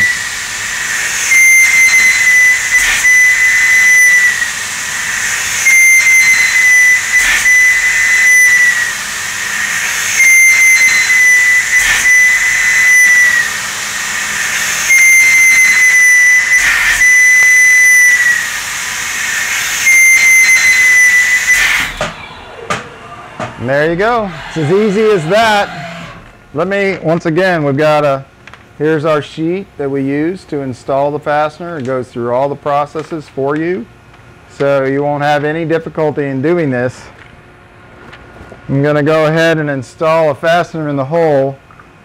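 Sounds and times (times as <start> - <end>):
thread mill cutting whine: 0.0 - 31.1.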